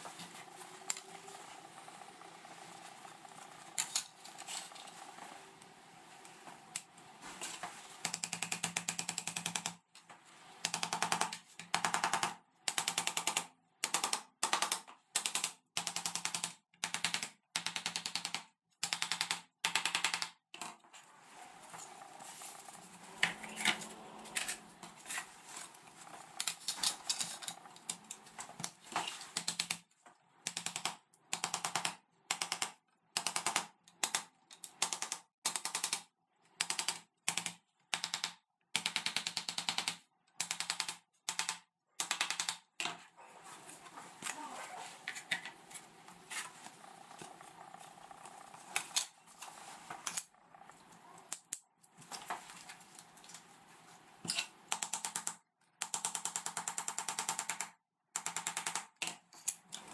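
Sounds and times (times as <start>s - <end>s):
panels rubbing and scraping: 20.9s - 29.4s, 43.0s - 51.0s.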